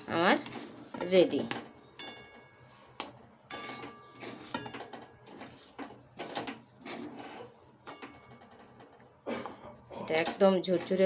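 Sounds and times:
metal spoon scraping a pan: 0:03.5 - 0:09.0.

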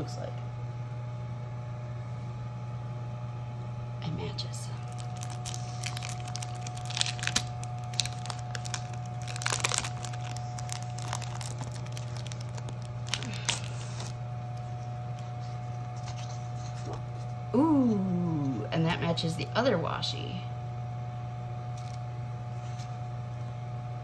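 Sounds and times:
plastic sleeve crinkling and tearing: 0:04.8 - 0:16.5.

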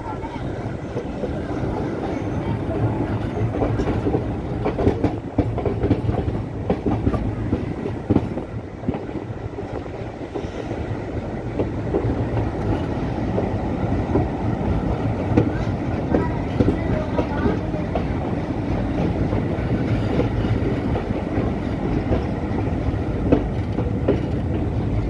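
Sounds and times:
train coach rumbling: 0:00.0 - 0:25.0
wheels clacking over rail joints: 0:11.5 - 0:24.8.

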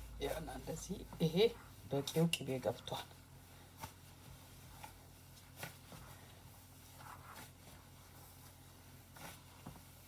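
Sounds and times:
soft rustling of dough: 0:00.0 - 0:10.0
steady low hum: 0:00.0 - 0:10.0.

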